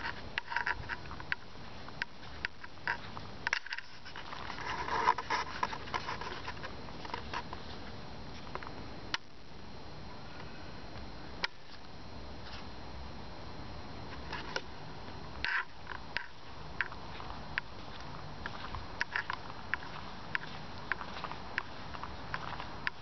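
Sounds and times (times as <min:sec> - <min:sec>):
rustling: 0:00.0 - 0:08.7
faint steady hiss: 0:00.0 - 0:23.0.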